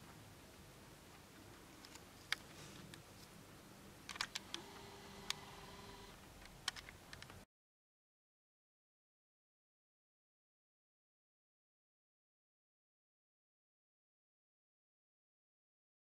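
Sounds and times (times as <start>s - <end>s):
faint hiss: 0.0s - 7.4s
sharp clicks and ticks: 4.1s - 4.6s, 5.2s - 5.4s, 6.4s - 7.4s.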